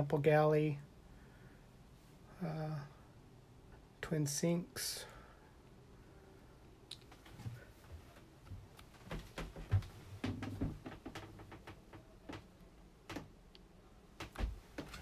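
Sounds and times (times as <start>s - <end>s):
light clicks and knocks: 7.0s - 13.4s, 14.2s - 15.0s
dull thumps: 8.5s - 12.4s, 14.2s - 15.0s.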